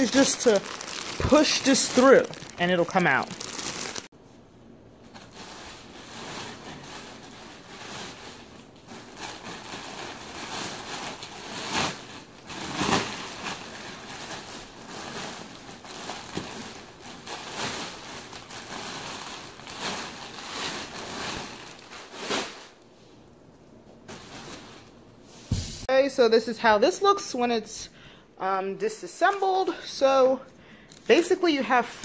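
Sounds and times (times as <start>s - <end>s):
plastic wrapping crinkling: 0.0s - 4.1s, 5.0s - 22.8s.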